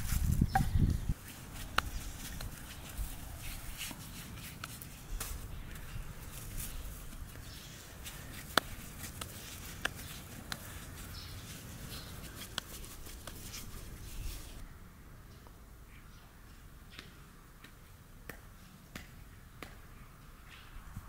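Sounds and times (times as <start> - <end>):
hands working bread dough: 0.0 - 14.6.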